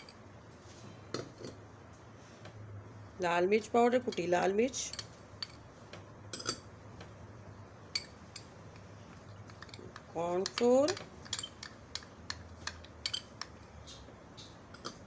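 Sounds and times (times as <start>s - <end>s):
metal spoon clinking against glass bowl: 4.1s - 5.6s, 8.0s - 8.5s, 10.4s - 13.5s.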